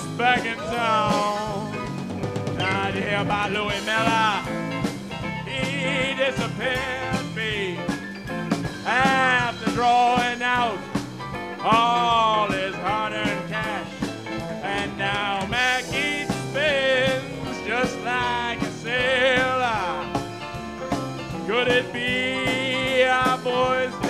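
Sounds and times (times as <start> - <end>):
live band playing: 0.0 - 24.0
person singing with vibrato: 5.4 - 7.8, 14.6 - 20.2, 21.4 - 24.0.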